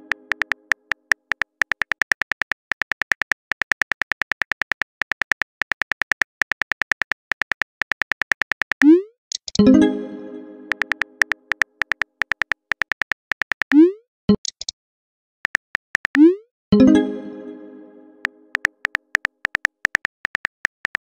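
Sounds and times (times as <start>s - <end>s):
phone keyboard clicks: 0.0s - 9.6s, 10.7s - 13.8s, 15.5s - 16.2s, 18.6s - 21.0s.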